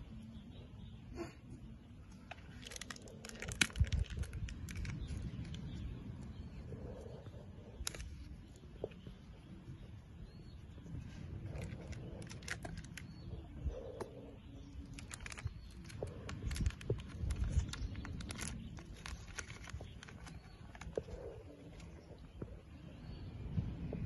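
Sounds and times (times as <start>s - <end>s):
wind rumbling on microphone: 2.0s - 24.0s
small clicks and crackles: 2.1s - 6.4s, 7.8s - 9.1s, 11.2s - 13.3s, 14.7s - 22.6s.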